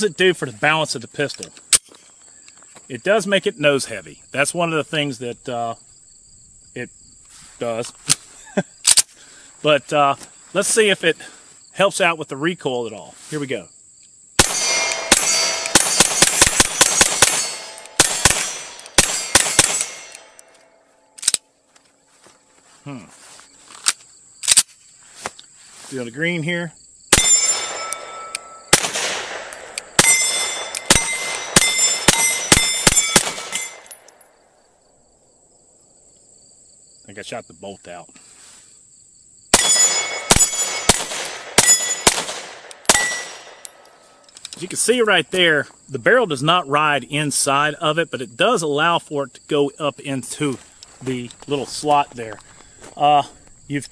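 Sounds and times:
pistol shots: 14.4s - 20.4s, 27.1s - 34.0s, 39.5s - 43.9s
ringing echo: 14.4s - 21.2s, 27.1s - 34.4s, 39.6s - 44.2s
pistol slide locking back: 21.2s - 21.4s.

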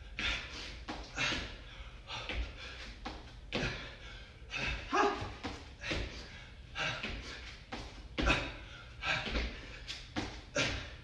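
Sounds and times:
feet thudding on mat: 0.2s - 4.0s, 4.6s - 10.9s
person grunting: 4.6s - 5.4s.

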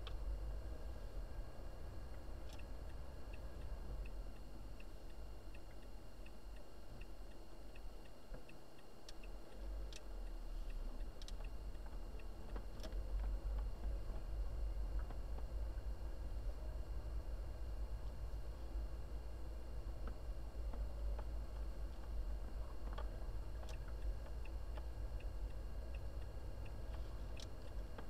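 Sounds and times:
turn signal ticking: 1.9s - 16.0s, 19.5s - 28.0s
engine and road rumble: 9.2s - 28.0s.

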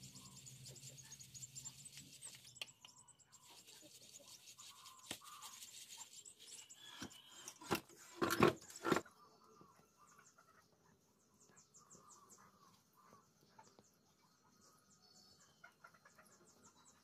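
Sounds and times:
flour rustling through sieve: 3.4s - 6.9s.

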